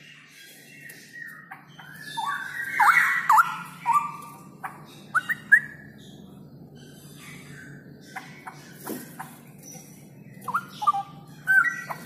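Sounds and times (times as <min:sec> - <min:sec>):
bird singing whistled notes: 0:10.3 - 0:12.0.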